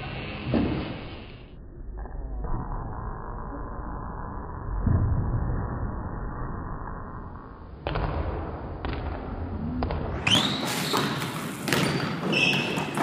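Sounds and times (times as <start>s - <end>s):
short high squeaks: 10.2s - 13.0s
basketball bouncing on hardwood: 10.9s - 13.0s.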